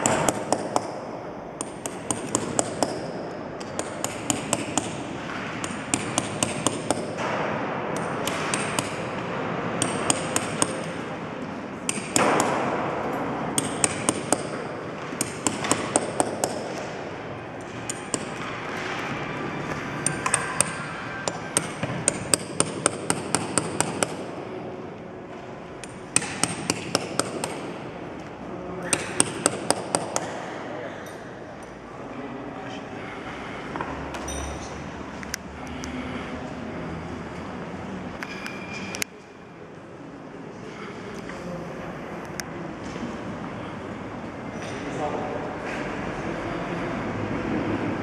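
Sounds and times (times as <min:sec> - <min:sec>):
hammer tapping metal chisel on stone: 0:00.0 - 0:01.0, 0:01.6 - 0:05.0, 0:05.6 - 0:07.2, 0:08.0 - 0:09.1, 0:09.8 - 0:11.0, 0:11.9 - 0:12.6, 0:13.6 - 0:16.9, 0:17.7 - 0:18.4, 0:20.0 - 0:24.2, 0:25.8 - 0:27.7.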